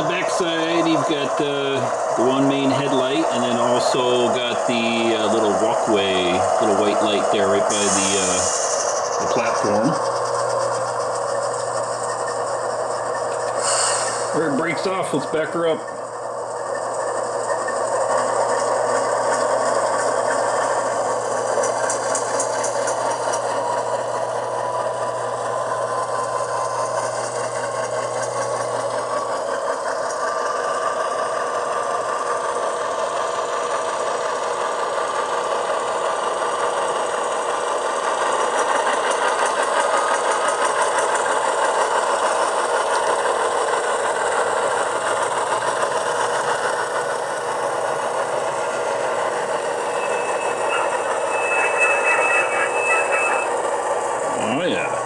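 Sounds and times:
steady low hum: 0:00.0 - 0:29.5, 0:44.0 - 0:55.0
diesel engine sound through small speaker: 0:00.0 - 0:55.0.

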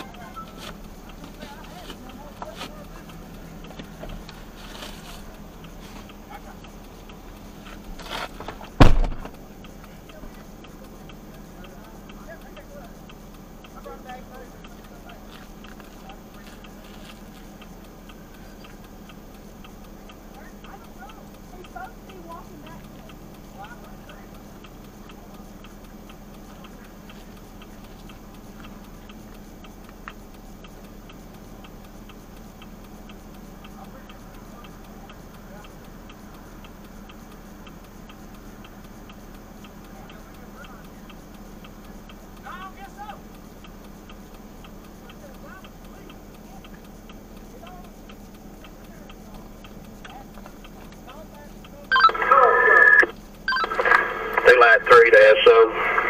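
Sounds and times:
low engine hum: 0:00.0 - 0:56.0
vehicle door shutting: 0:08.0 - 0:09.4
indicator flasher clicking: 0:31.9 - 0:55.6.

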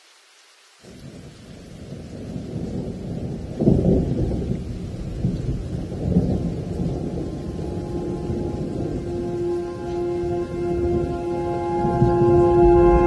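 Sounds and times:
thunder rumbling: 0:00.9 - 0:13.0
held musical note: 0:07.2 - 0:13.0.

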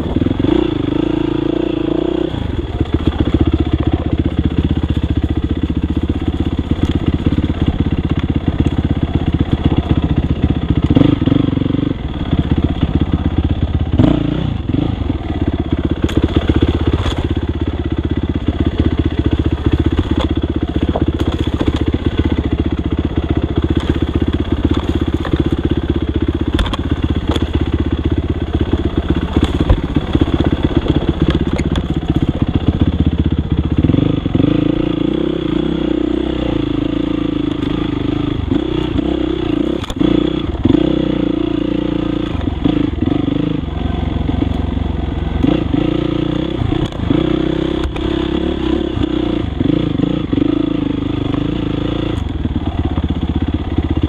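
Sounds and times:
dirt bike engine running: 0:00.0 - 0:54.0
sharp clicks and knocks: 0:26.5 - 0:27.7.

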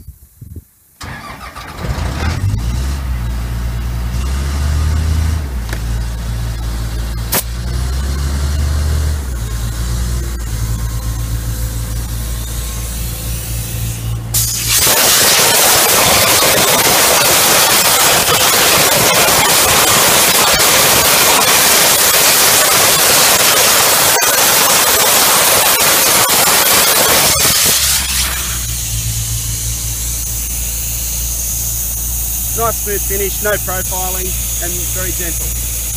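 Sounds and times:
compressor engine running: 0:09.2 - 0:35.9
loud hiss of blasting water: 0:13.3 - 0:35.9.

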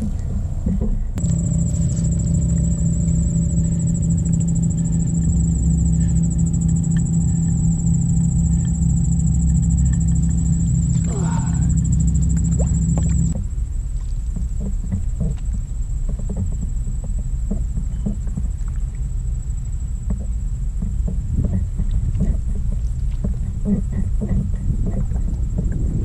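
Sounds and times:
droning hum: 0:00.0 - 0:26.0
high-pitched whine: 0:00.2 - 0:13.4.

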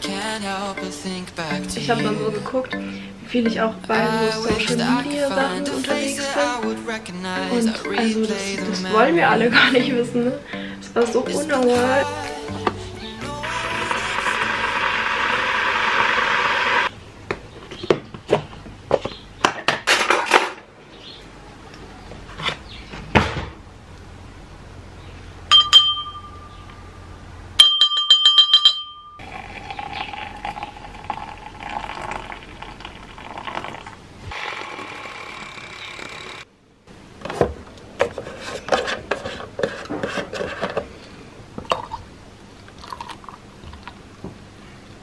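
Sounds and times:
steady hum: 0:00.0 - 0:17.0
milk frother whirring: 0:13.7 - 0:16.9, 0:29.2 - 0:36.5
glass and utensil clinks: 0:25.5 - 0:26.7, 0:27.6 - 0:29.3.

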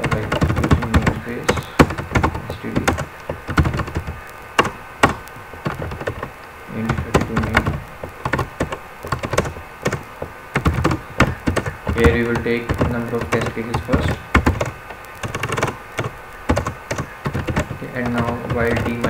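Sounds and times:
typing on computer keyboard: 0:00.0 - 0:19.0.

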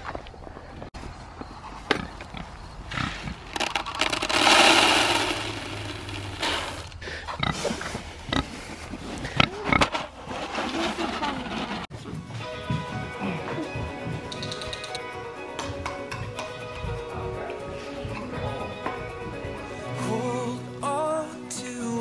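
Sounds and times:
grain pouring into a rubber pan: 0:03.6 - 0:06.9.

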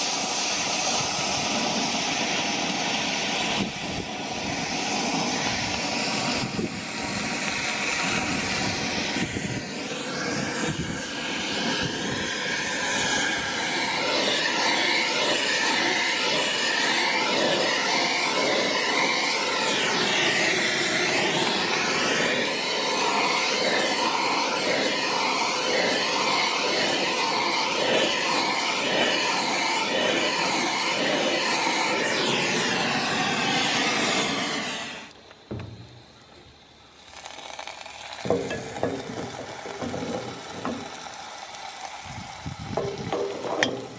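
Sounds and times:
cutting torch hissing: 0:00.0 - 0:43.9.

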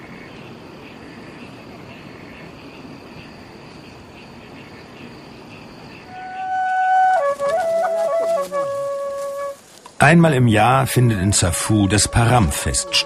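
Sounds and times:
faint outdoor hiss: 0:00.0 - 0:13.0
insects chirping: 0:00.0 - 0:13.0
flute note: 0:06.1 - 0:09.6, 0:10.8 - 0:13.0.

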